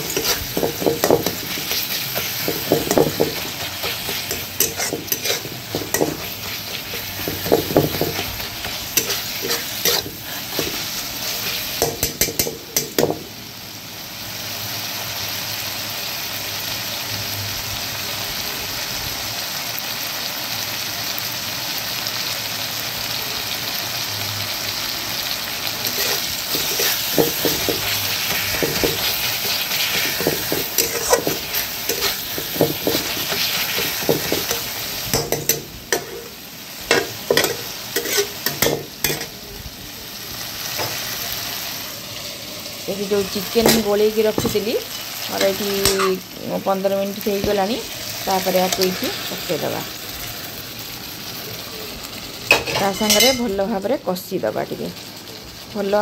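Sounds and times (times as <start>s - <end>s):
metal spatula scraping pan: 0.0s - 13.2s, 25.8s - 39.4s
food sizzling in a pan: 0.0s - 56.0s.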